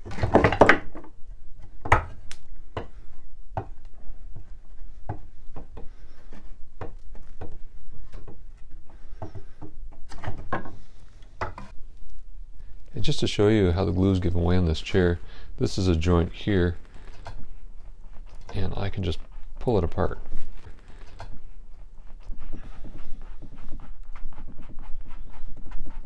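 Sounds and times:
wooden clatter: 0:00.0 - 0:11.8
wooden joints knocking and creaking: 0:00.0 - 0:11.8, 0:13.8 - 0:26.0.

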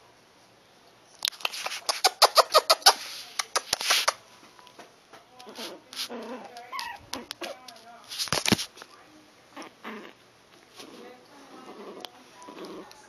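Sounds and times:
puppies squeaking and yipping: 0:01.5 - 0:04.2, 0:06.0 - 0:07.3
puppies whining: 0:06.1 - 0:07.3.

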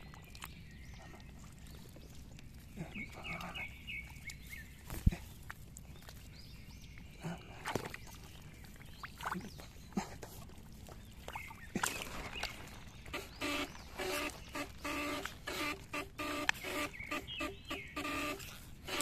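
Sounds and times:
hand splashing in muddy water: 0:07.1 - 0:13.5
short buzzing pulses: 0:13.0 - 0:19.0.

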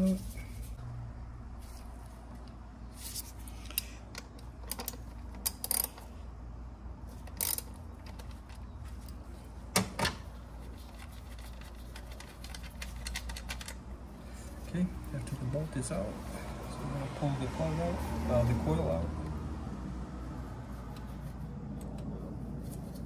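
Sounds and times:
hand ratchet clicking: 0:04.7 - 0:06.0, 0:07.3 - 0:07.8.

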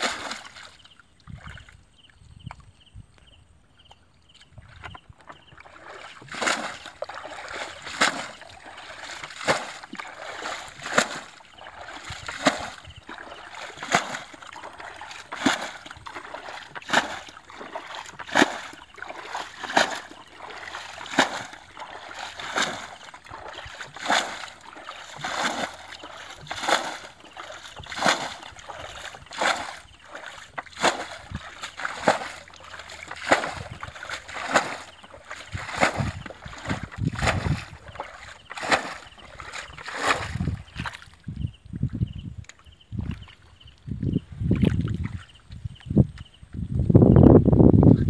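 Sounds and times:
water splashing from bucket: 0:00.0 - 0:01.8, 0:04.7 - 0:41.2.

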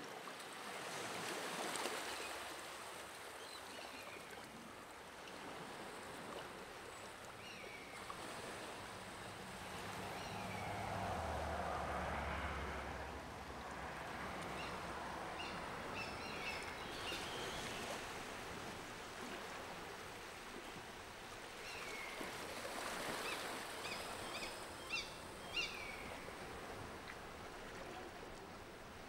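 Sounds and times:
steady outdoor hiss: 0:00.0 - 0:29.0.

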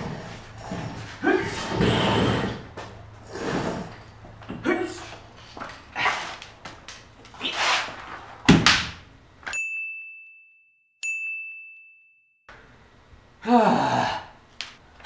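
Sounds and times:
chime-like dings: 0:09.5 - 0:12.4.

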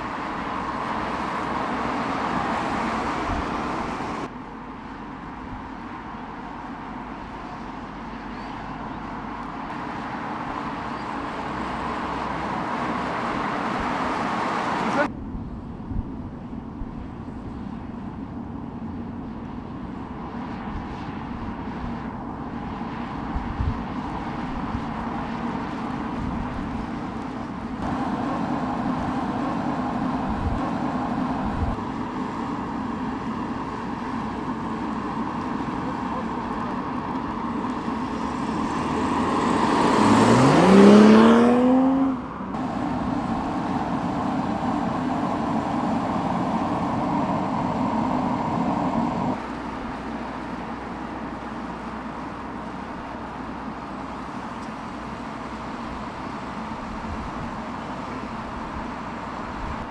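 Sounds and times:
car engine: 0:00.0 - 0:15.1, 0:16.2 - 0:59.9
engine revving: 0:27.8 - 0:32.4, 0:34.4 - 0:49.4.

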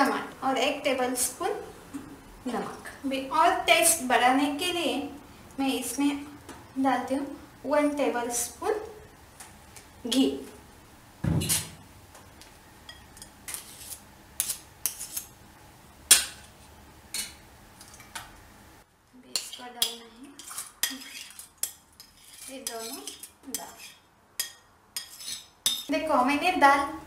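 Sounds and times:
loud knock: 0:11.2 - 0:11.8
spoon scraping metal pot: 0:19.3 - 0:25.9.

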